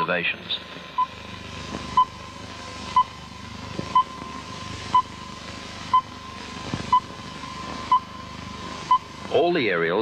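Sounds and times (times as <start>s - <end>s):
faint continuous tone: 0.0s - 10.0s
low background hiss: 0.0s - 10.0s
short electronic beeps: 5.9s - 8.3s, 8.9s - 9.1s.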